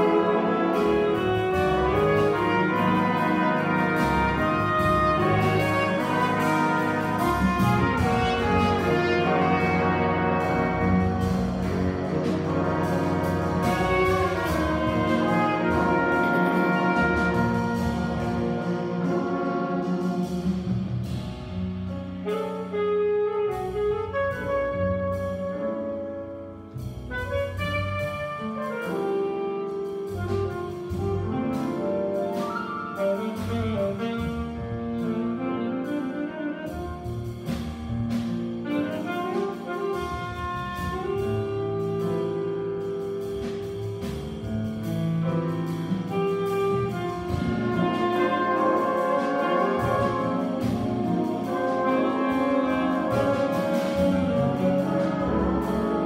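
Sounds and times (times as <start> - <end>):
saxophones and brass chords: 0.0 - 21.2, 22.2 - 56.0
drums: 0.0 - 56.0
piano: 0.0 - 56.0
upright bass: 0.2 - 22.2, 36.7 - 38.6, 40.0 - 56.0.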